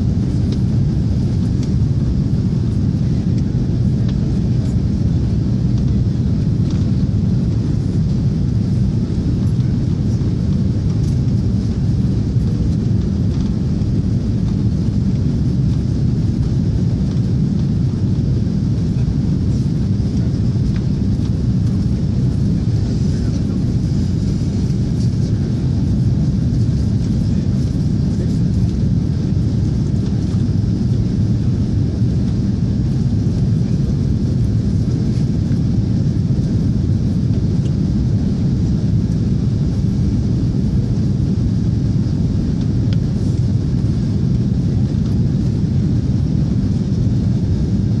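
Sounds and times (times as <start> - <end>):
jet engine cabin rumble: 0.0 - 48.0.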